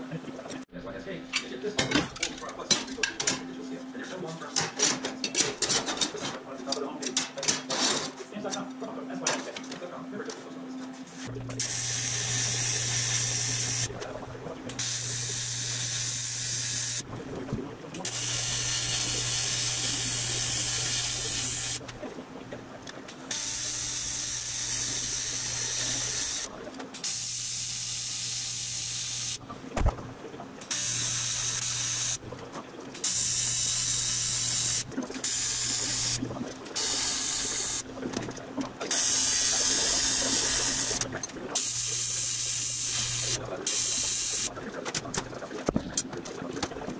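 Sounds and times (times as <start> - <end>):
welding arc buzzing: 11.2 - 13.9, 14.7 - 17.1, 18.0 - 21.9, 23.2 - 29.4, 30.6 - 32.2, 32.9 - 37.8, 38.8 - 44.5.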